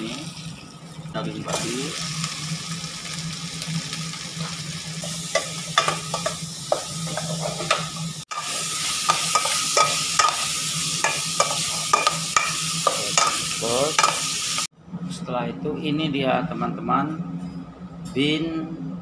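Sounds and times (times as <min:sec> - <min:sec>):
meat sizzling in a pot: 0:01.4 - 0:14.7.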